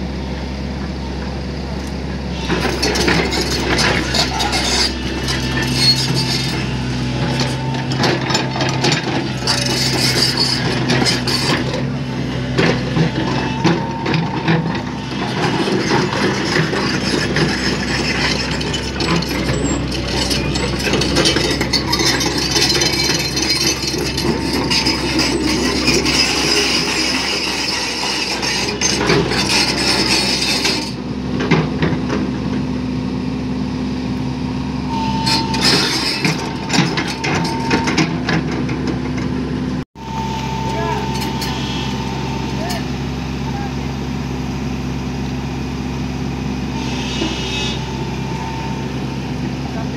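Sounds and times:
excavator diesel engine running: 0.0 - 49.9
metallic clanks and rattles: 2.4 - 32.3, 35.0 - 39.4.

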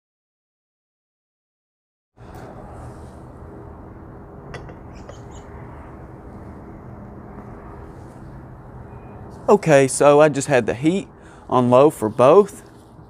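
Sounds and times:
low rumble and hum: 2.2 - 9.6.

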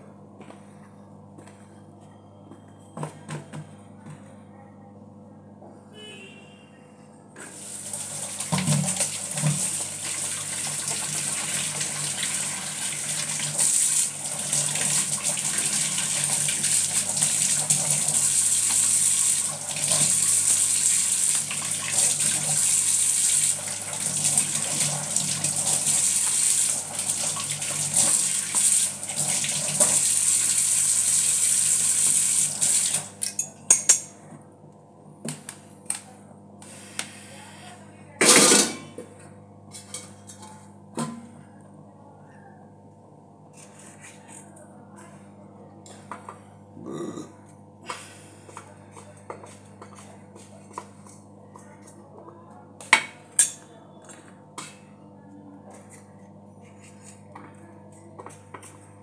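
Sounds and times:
tap water running into colander: 7.4 - 33.2.

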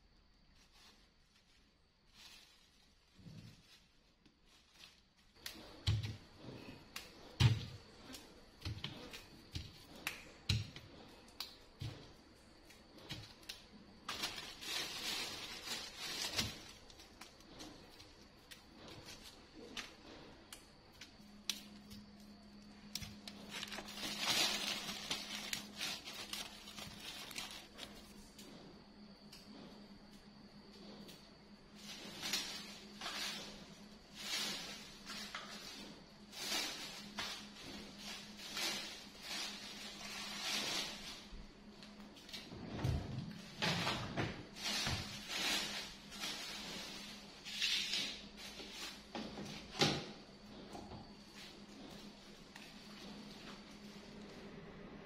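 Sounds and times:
plastic bag crinkling: 0.5 - 9.0, 13.0 - 20.2, 21.2 - 28.3, 31.9 - 42.0.

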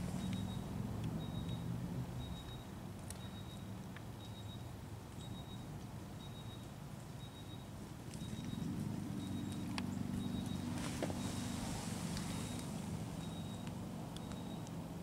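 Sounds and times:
faint high beeps: 0.1 - 14.7
distant engine rumble: 7.3 - 15.0.

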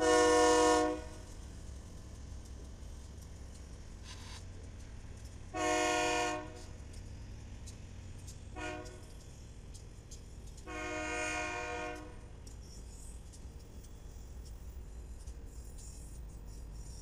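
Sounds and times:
locomotive air horn blasts: 0.0 - 1.2, 5.5 - 6.7, 8.6 - 9.0, 10.7 - 12.2.

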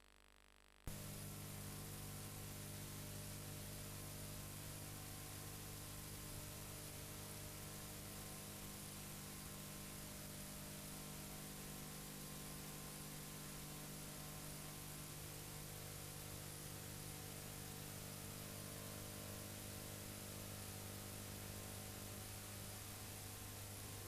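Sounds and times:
low electrical hum: 0.9 - 24.0.

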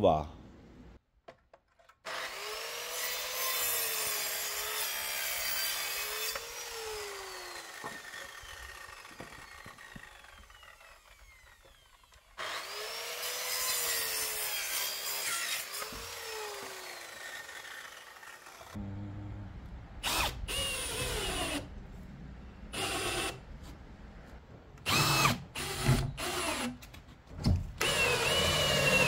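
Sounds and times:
power saw cutting: 2.0 - 18.9, 20.0 - 21.7, 22.7 - 23.4, 27.8 - 29.0.

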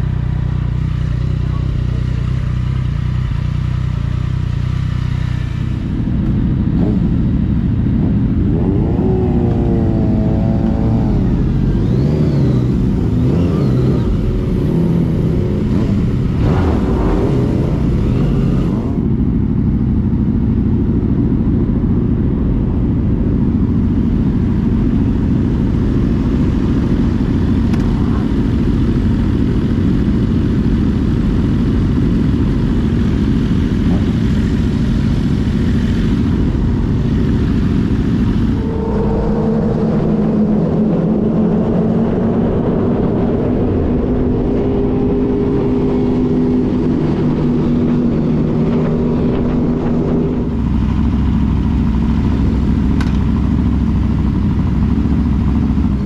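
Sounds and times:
motorcycle engine running: 0.0 - 56.0
wind rush on microphone: 36.1 - 52.2.

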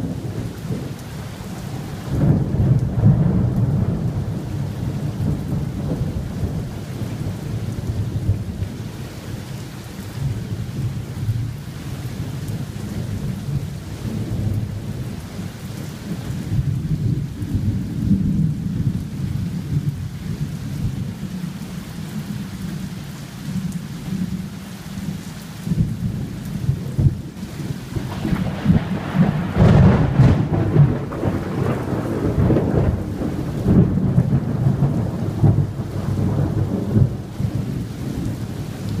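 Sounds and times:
rolling thunder: 0.0 - 8.8, 25.7 - 39.0
rain falling: 0.0 - 39.0.

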